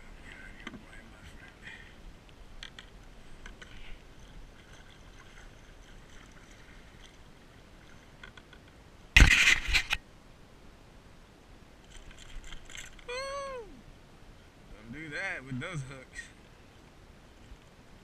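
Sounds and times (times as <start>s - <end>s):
light scrapes and clicks: 2.6s - 7.2s, 7.8s - 10.0s, 11.8s - 13.1s.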